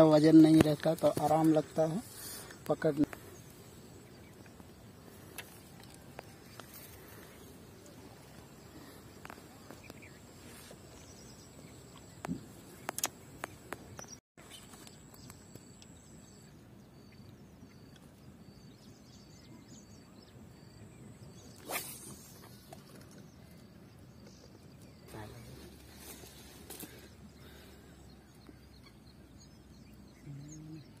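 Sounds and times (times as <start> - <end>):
outdoor background hiss: 0.0 - 31.0.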